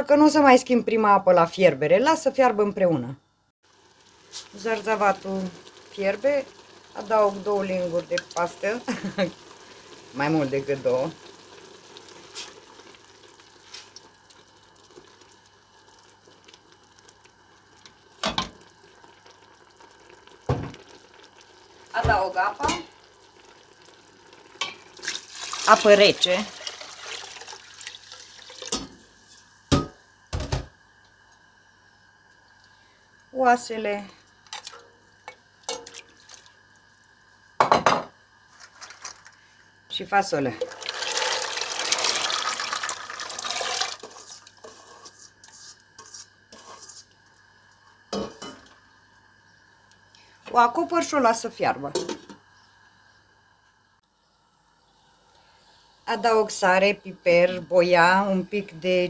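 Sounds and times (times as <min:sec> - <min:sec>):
low steady sizzle: 0:00.0 - 0:59.0
bones splashing into broth: 0:24.4 - 0:25.7.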